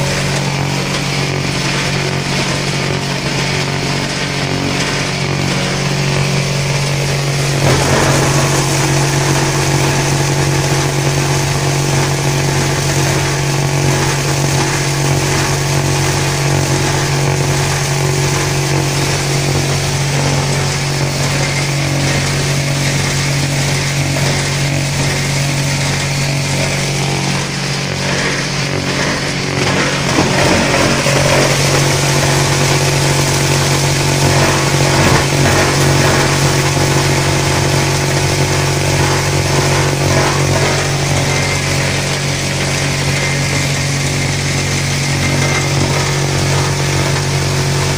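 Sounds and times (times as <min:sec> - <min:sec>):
industrial shredder hum: 0:00.0 - 0:47.9
material being cut: 0:07.1 - 0:10.8.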